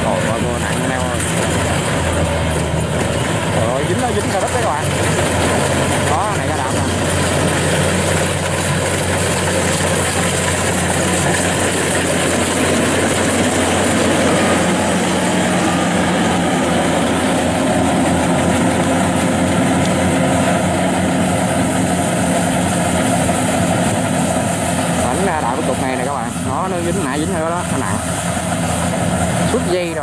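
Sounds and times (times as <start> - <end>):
combine harvester droning: 0.0 - 30.0.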